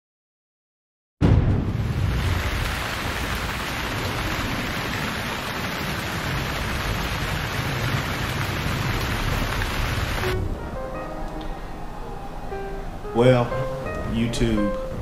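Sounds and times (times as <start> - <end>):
steady rain falling: 1.6 - 10.5.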